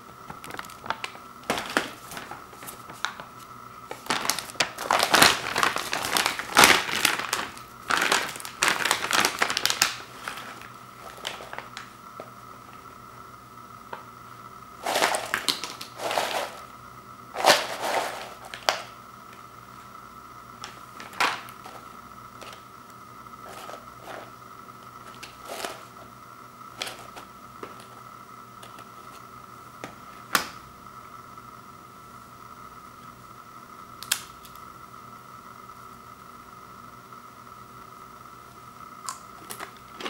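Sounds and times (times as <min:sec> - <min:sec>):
faint high whine: 0:00.0 - 0:40.0
chips crackling: 0:00.3 - 0:12.4, 0:14.8 - 0:16.7, 0:17.3 - 0:19.5, 0:20.6 - 0:22.7, 0:23.4 - 0:26.1, 0:26.7 - 0:28.0
snack bag rustling: 0:00.4 - 0:03.3, 0:03.9 - 0:11.9, 0:14.8 - 0:16.7, 0:17.4 - 0:19.0, 0:20.6 - 0:22.6, 0:23.4 - 0:24.4, 0:25.0 - 0:26.1.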